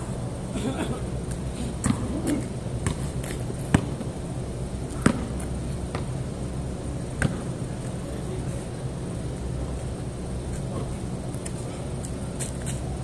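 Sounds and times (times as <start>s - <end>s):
low background rumble: 0.0s - 13.0s
basketball bouncing on concrete: 1.8s - 4.1s, 5.0s - 6.2s, 7.2s - 7.5s.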